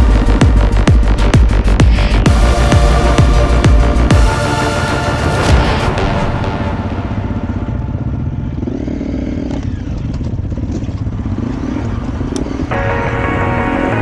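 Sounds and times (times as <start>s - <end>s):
background music: 0.0s - 8.8s, 12.7s - 14.0s
motorcycle engine revving: 0.0s - 14.0s.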